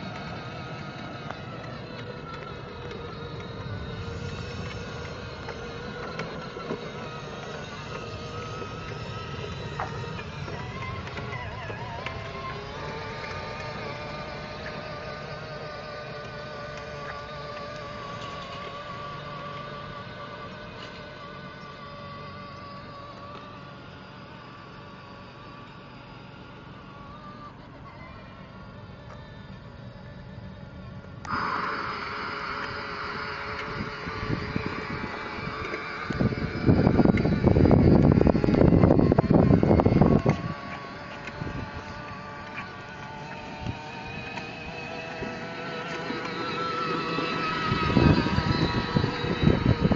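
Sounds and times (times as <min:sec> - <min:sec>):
toy car electric motor whine: 0:00.0 - 0:49.9
wind rumbling on microphone: 0:32.1 - 0:49.9.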